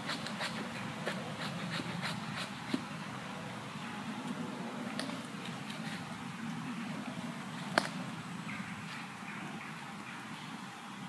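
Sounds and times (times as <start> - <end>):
knife scraping wood: 0.0 - 2.8
steady low hum: 0.0 - 11.0.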